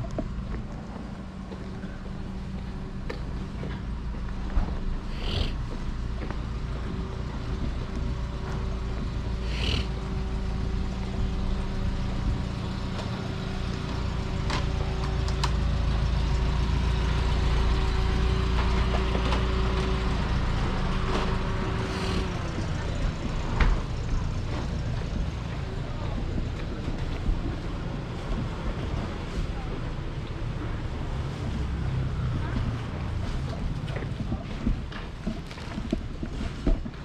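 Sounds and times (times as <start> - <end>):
engine idling: 0.0 - 36.8.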